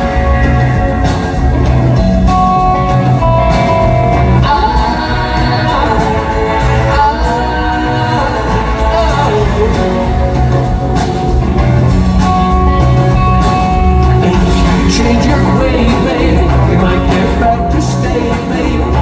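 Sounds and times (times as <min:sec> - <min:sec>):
guitar: 0:00.0 - 0:19.0
steady bass: 0:00.0 - 0:19.0
person singing long notes: 0:02.6 - 0:11.1.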